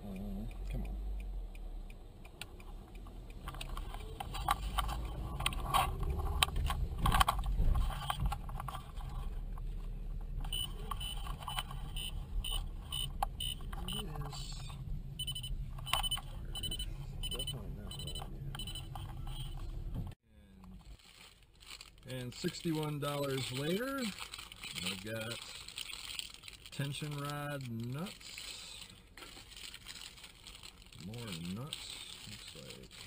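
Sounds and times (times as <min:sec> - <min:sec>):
car cabin rumble: 0:00.0 - 0:20.7
clicks and rattles: 0:02.4 - 0:14.8
high repeating beep: 0:15.2 - 0:19.5.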